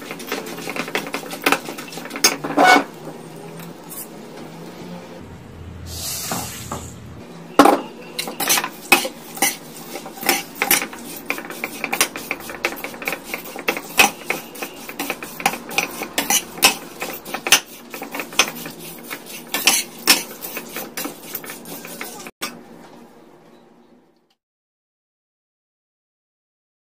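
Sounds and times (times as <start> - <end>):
metal spatula scraping a pan: 0.0 - 3.0, 7.7 - 22.3.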